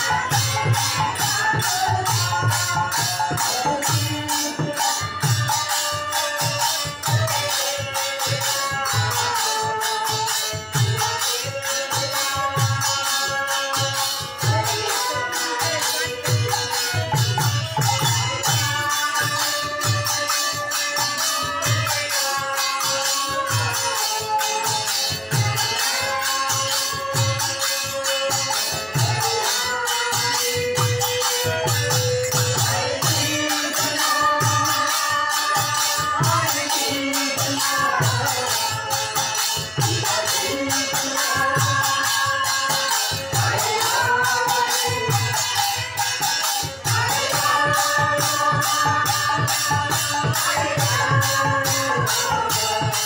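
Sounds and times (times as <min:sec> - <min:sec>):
group singing: 0:00.0 - 0:53.0
harmonium: 0:00.0 - 0:53.0.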